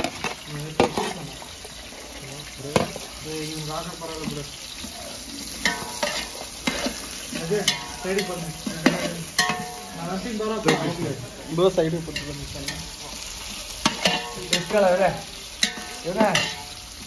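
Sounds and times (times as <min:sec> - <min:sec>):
metal ladle stirring: 0:00.0 - 0:01.5, 0:05.6 - 0:11.0, 0:12.1 - 0:17.0
food sizzling in a pot: 0:00.0 - 0:17.0
ladle clanking against pot: 0:07.6 - 0:09.8, 0:13.8 - 0:14.8.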